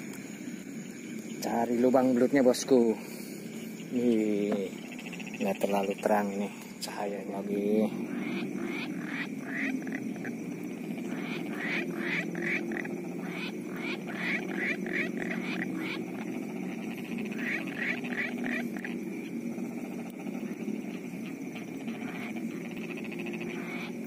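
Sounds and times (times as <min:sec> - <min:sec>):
low frog chorus: 0:00.0 - 0:24.0
quick high-pitched frog calls: 0:07.8 - 0:24.0.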